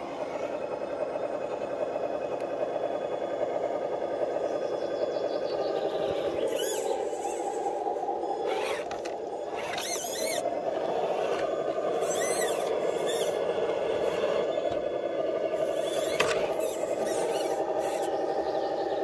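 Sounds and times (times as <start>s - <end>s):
electric motor and gear whine: 0.0s - 19.0s
short high squeals: 6.5s - 7.5s, 9.6s - 10.4s, 12.0s - 13.4s.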